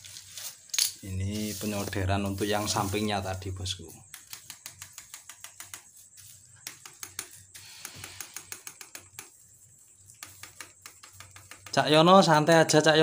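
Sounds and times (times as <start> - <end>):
plastic sheeting crackling: 0.0 - 4.5.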